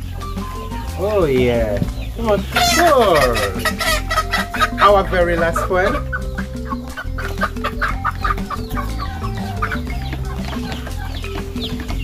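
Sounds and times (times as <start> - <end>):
background music with low notes: 0.0 - 12.0
chickens clucking and chirping: 0.0 - 12.0.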